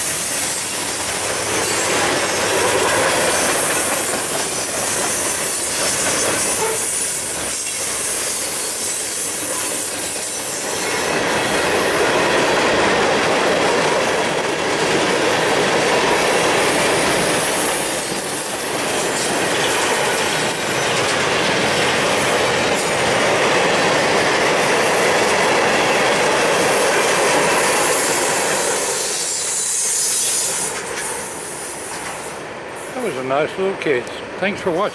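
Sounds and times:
freight train wheels on rails: 0.0s - 34.9s.

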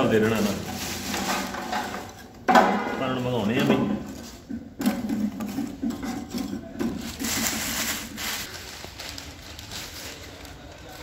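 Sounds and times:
charcoal scraping on metal grate: 0.0s - 2.3s.

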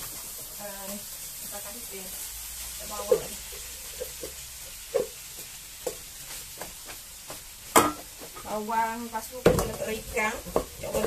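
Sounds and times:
rice sizzling in a wok: 0.0s - 11.0s
wooden spatula scraping and tapping pot: 2.9s - 8.6s, 9.3s - 11.0s.

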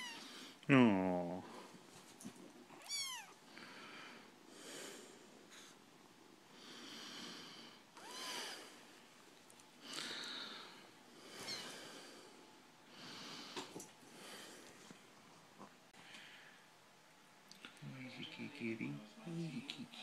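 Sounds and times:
kitten mewing: 2.8s - 3.4s, 8.0s - 8.5s, 11.4s - 11.7s
kitten breathing: 6.5s - 8.8s, 9.8s - 14.9s.

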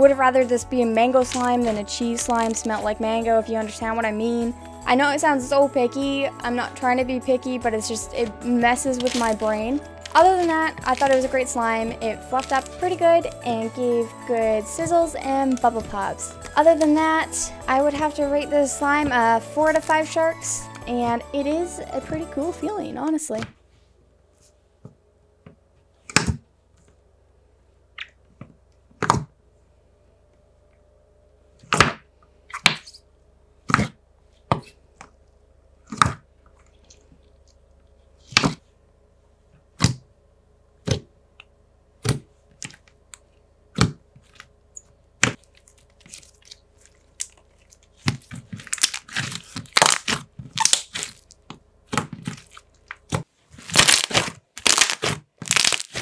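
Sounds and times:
slime crackling when kneaded: 8.6s - 13.7s, 45.2s - 56.0s
slime bubbles popping: 53.7s - 56.0s.

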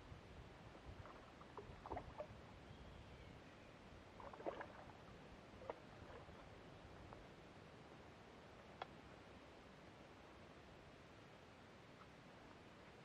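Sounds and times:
water splashing and sloshing: 0.8s - 2.5s, 4.1s - 7.3s.

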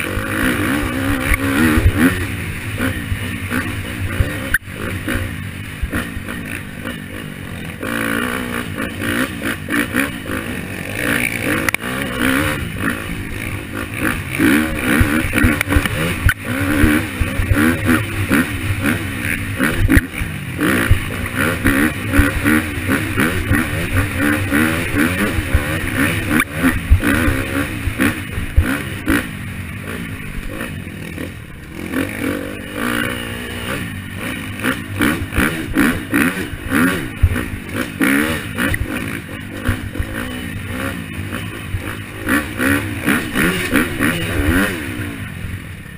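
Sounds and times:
dirt bike engine revving: 0.0s - 45.9s.

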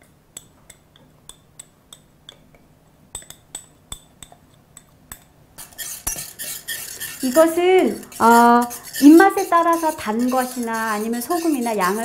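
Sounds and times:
spatula scraping in pan: 5.6s - 12.0s.

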